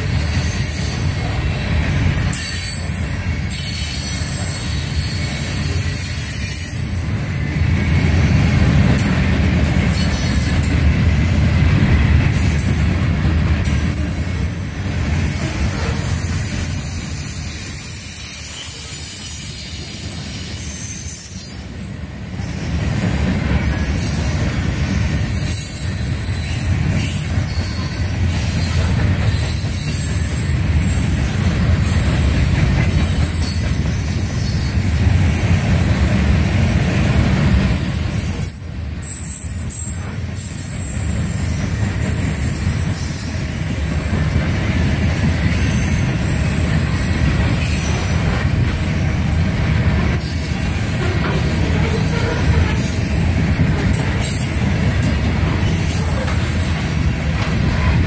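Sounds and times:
train wheels rumbling on rails: 0.0s - 58.0s
high-pitched wheel squeal: 16.7s - 21.7s, 38.3s - 43.2s.

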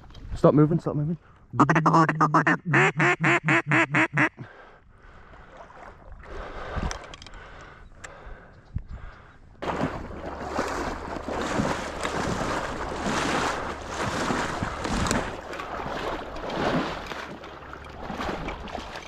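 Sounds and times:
water sloshing and splashing: 5.0s - 7.6s, 9.6s - 19.0s
wind rumble on microphone: 8.5s - 17.1s.

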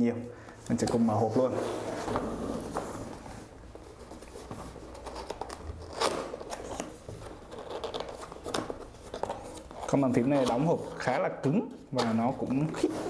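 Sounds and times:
cardboard rubbing and scraping: 1.2s - 11.0s.

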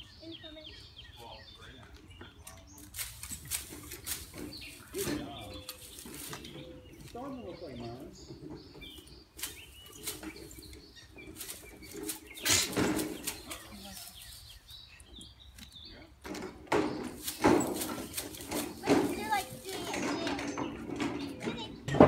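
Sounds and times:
dry grass rustling: 2.6s - 21.7s
hedge shears cutting: 2.8s - 7.3s, 9.4s - 14.7s, 16.6s - 21.7s.

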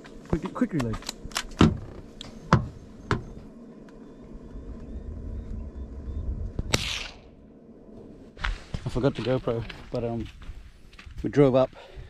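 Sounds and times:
rifle shots: 6.7s - 7.4s.

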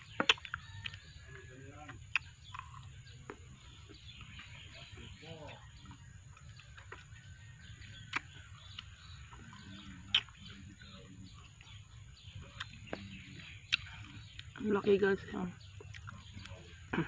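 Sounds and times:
person chewing: 0.2s - 1.0s, 2.1s - 3.4s, 10.1s - 10.4s, 12.5s - 12.9s, 13.7s - 14.6s, 15.8s - 17.0s
wet mouth clicks: 10.1s - 10.4s, 13.7s - 14.5s.

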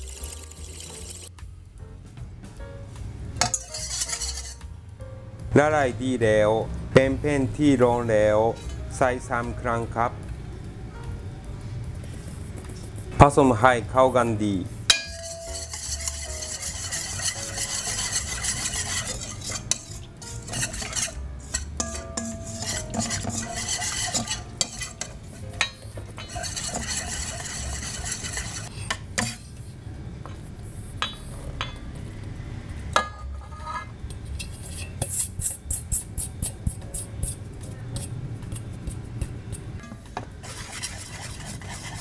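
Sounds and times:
wire whisk scraping metal bowl: 3.4s - 4.7s, 14.9s - 29.6s, 33.5s - 42.0s.

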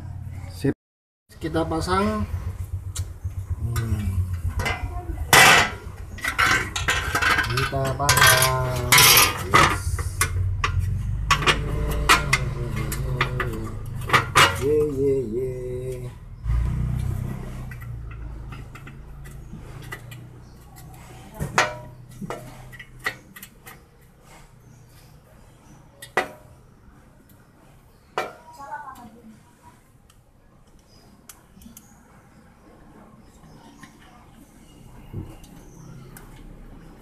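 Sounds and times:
low rumble: 2.2s - 7.7s
plastic fan parts clattering: 4.6s - 15.0s.

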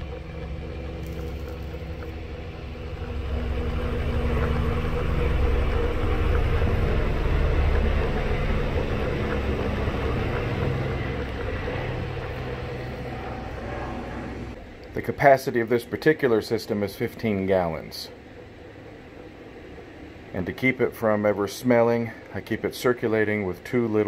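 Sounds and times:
coolant trickling: 0.0s - 13.6s
electric motor and pump hum: 0.0s - 24.0s.

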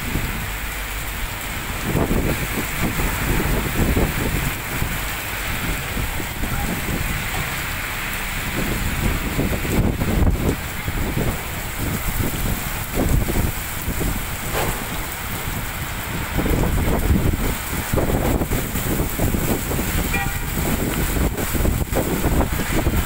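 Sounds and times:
heavy rain pouring: 0.0s - 23.0s
wind buffeting microphone: 0.0s - 23.0s
car horn toot: 20.1s - 20.6s.

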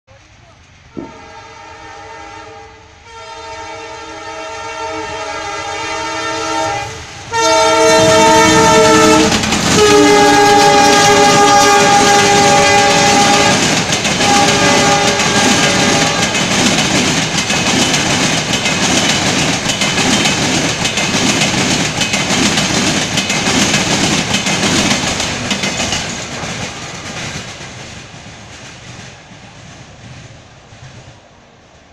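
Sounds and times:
train wheels clattering over rails: 0.9s - 1.4s, 7.3s - 31.9s
locomotive horn blasts: 1.0s - 16.4s.

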